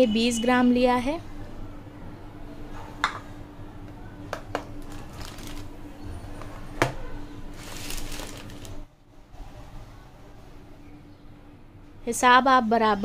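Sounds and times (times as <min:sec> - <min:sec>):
plastic bag rustling: 0:04.8 - 0:05.8, 0:07.4 - 0:08.9.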